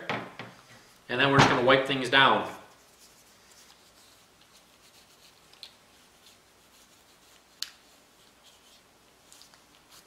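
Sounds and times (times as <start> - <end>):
cloth rubbing on metal: 2.3 - 10.0.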